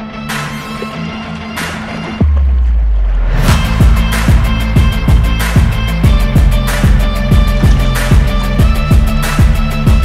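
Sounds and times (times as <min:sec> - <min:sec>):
deep bass note: 0:02.4 - 0:10.0
kick drum beat: 0:03.5 - 0:10.0.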